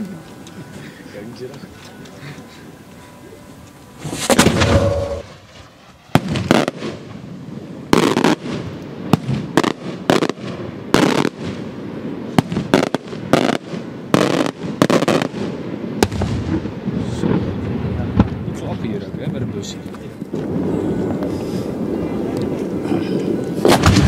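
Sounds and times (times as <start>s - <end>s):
firework bangs: 3.6s - 24.0s
rushing burst: 3.9s - 7.3s.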